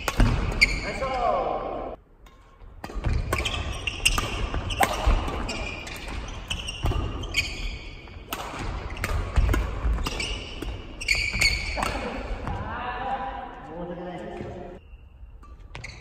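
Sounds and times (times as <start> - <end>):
racket hitting shuttlecock: 0.0 - 0.8, 2.1 - 12.7
shoes squeaking on wooden floor: 0.5 - 1.0, 3.1 - 8.2, 8.8 - 11.8, 15.6 - 16.0.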